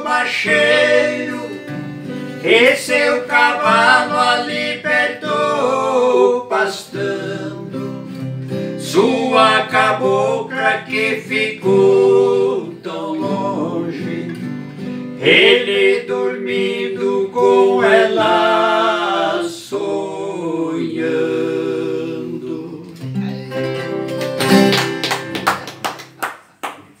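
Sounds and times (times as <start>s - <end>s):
men singing: 0.0s - 8.2s, 8.8s - 14.5s, 15.2s - 23.0s
guitars playing: 0.0s - 15.5s, 22.6s - 25.8s.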